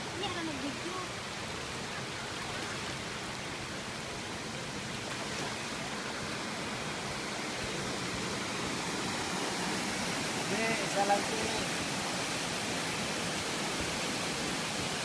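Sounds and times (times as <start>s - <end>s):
water rushing over stones: 0.0s - 15.0s.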